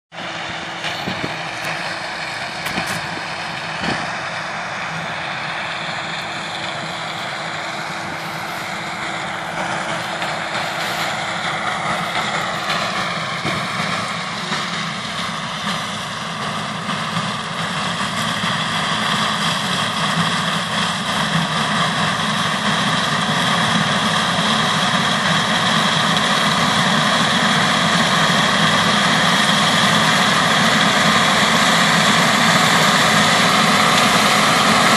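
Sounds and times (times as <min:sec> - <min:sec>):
combine harvester running: 0:00.1 - 0:34.9.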